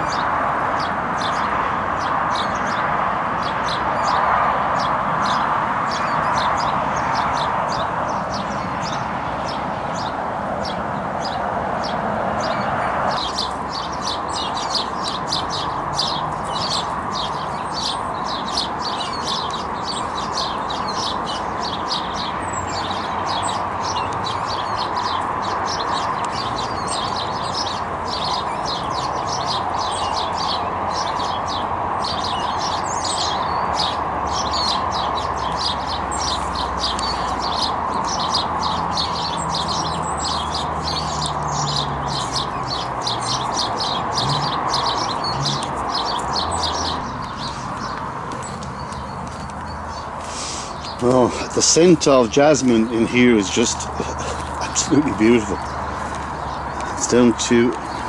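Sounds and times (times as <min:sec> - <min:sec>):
bird chick peeping: 0:12.4 - 0:51.1.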